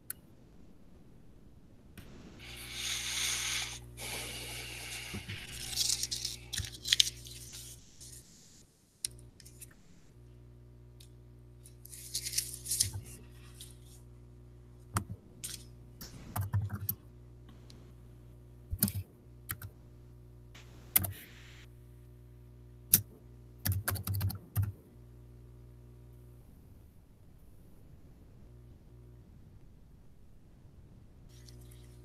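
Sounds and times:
low electrical hum: 0:00.0 - 0:32.0
keyboard typing: 0:23.7 - 0:24.7.

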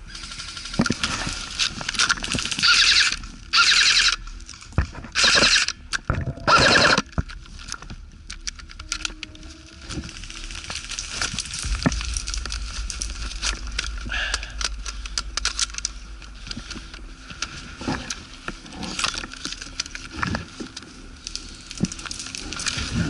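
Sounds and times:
footsteps through dry undergrowth: 0:07.4 - 0:23.0.

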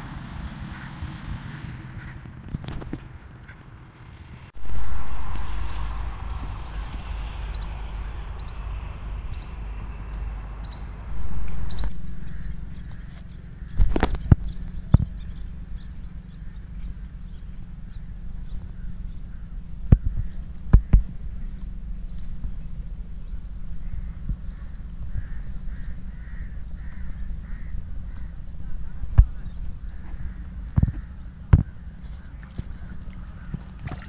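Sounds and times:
bird calling in harsh notes: 0:00.0 - 0:34.0
insects chirping: 0:00.0 - 0:34.0
low rumble: 0:03.0 - 0:34.0.

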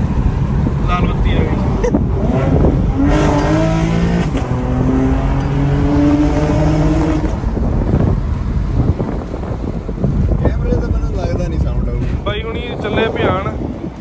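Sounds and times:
car engine revving: 0:00.0 - 0:11.1.

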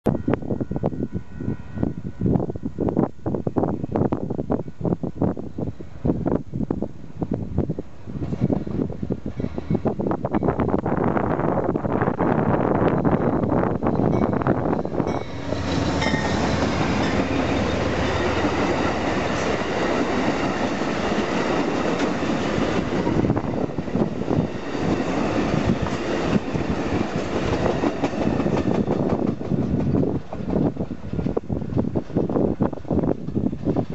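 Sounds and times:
diesel locomotive engine hum: 0:00.1 - 0:33.9.

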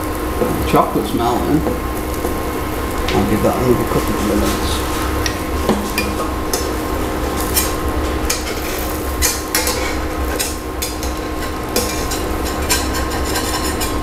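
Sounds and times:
frying hiss: 0:00.0 - 0:14.0
spatula scraping metal frying pan: 0:04.9 - 0:14.0.

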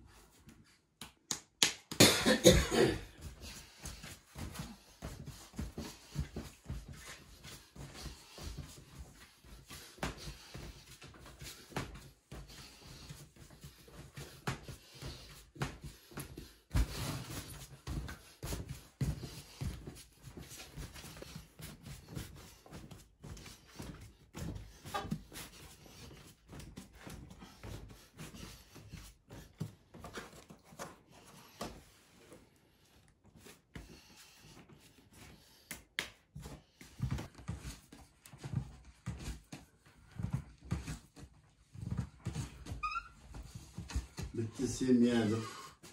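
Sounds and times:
hands slapping bread dough: 0:00.4 - 0:02.2, 0:35.2 - 0:38.4.

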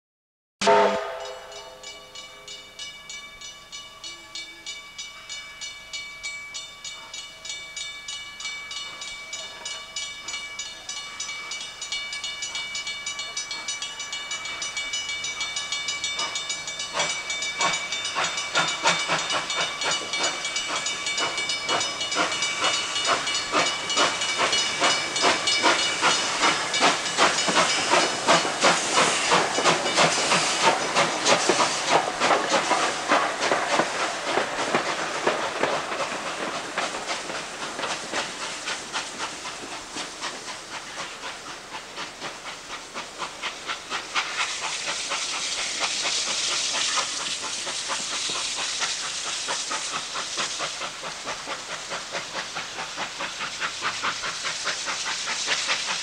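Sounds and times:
steam locomotive exhaust chuffs: 0:00.6 - 0:56.0
steam hissing from drain cocks: 0:15.1 - 0:56.0.

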